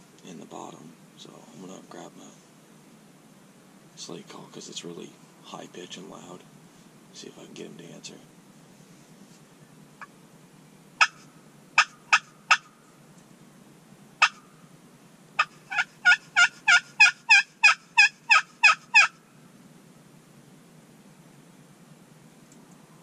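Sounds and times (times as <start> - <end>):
slate turkey call yelping: 11.0 - 12.8, 14.2 - 14.6, 15.4 - 19.2.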